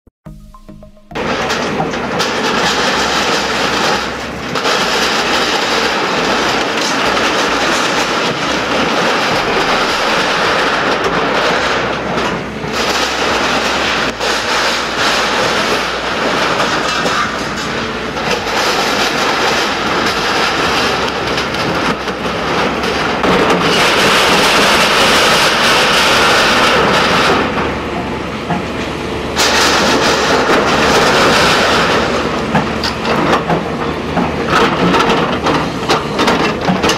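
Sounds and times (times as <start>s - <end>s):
excavator diesel engine: 0.3s - 36.9s
building debris grinding and crashing: 1.2s - 36.9s.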